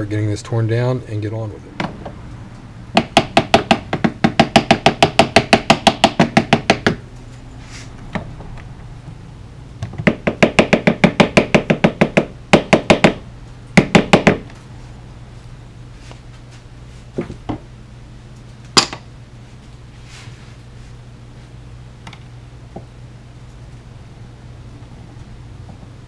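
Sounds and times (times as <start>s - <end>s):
mallet tapping on wooden block: 3.0s - 7.0s.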